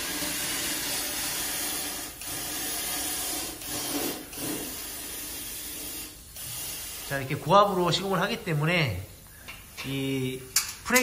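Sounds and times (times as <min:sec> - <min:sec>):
spray gun hissing: 0:00.0 - 0:08.0.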